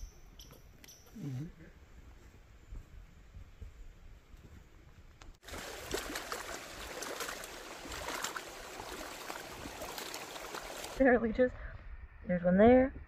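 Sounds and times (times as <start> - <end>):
wind rumble on microphone: 1.7 - 5.4, 8.7 - 13.0
small waves lapping: 5.4 - 11.0.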